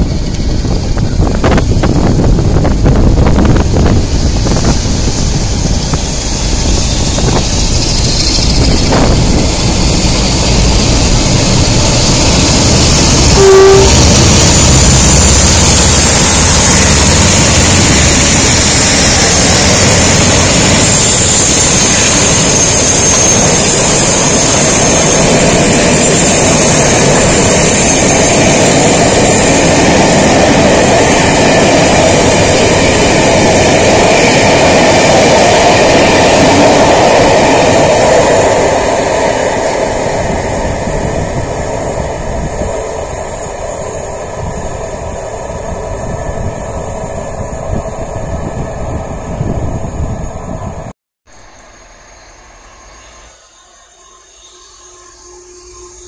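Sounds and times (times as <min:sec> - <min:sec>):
train rumbling on rails: 0:00.0 - 0:56.0
short pitched tone: 0:13.3 - 0:14.5, 0:52.6 - 0:56.0.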